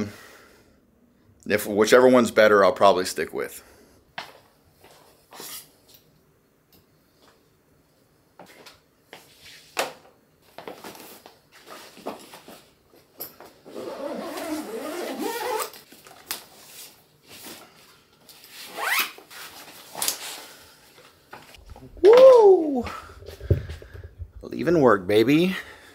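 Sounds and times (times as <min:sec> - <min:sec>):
zipper pulled quickly: 0:13.7 - 0:15.7.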